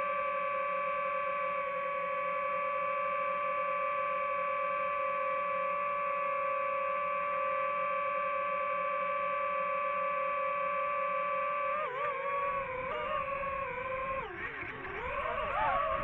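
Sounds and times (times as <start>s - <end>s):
drone propellers whining: 9.6s - 16.0s.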